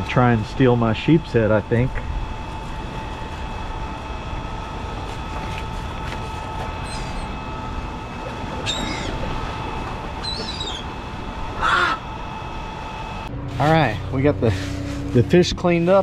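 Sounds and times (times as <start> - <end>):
steady machine hum: 0.0 - 16.0
short bird calls: 8.6 - 9.2, 10.2 - 10.9.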